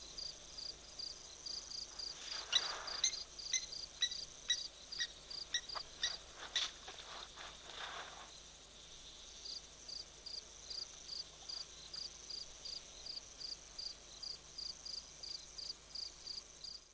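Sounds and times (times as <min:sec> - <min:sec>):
high-pitched insect hum: 0:00.0 - 0:16.9
short high insect chirp: 0:02.0 - 0:06.8.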